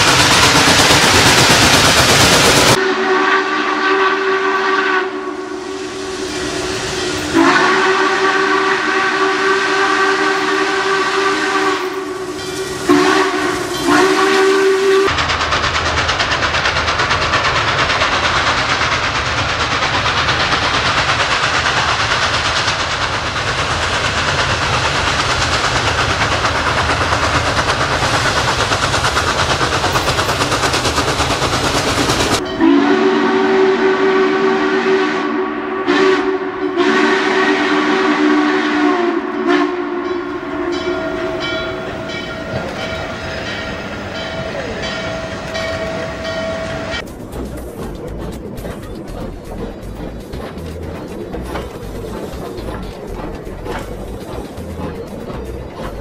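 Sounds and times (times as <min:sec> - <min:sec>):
low rumbling of locomotive: 0:00.0 - 0:56.0
steam locomotive hissing: 0:00.0 - 0:56.0
steam locomotive chime whistle: 0:02.7 - 0:15.1, 0:32.4 - 0:47.1.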